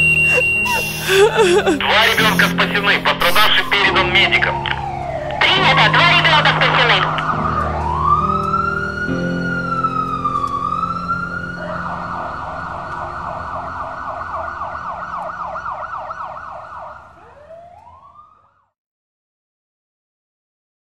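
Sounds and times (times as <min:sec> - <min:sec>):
emergency vehicle siren: 0:00.0 - 0:18.8.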